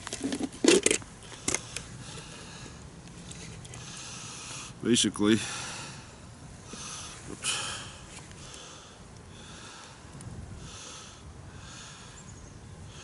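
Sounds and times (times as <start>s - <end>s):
person sniffing breaths: 5.4s - 12.2s.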